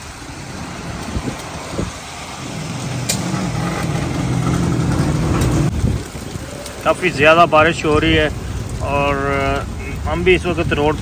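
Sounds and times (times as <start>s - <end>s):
heavy rain hissing: 0.0s - 11.0s
motorcycle engine passing: 0.1s - 6.5s.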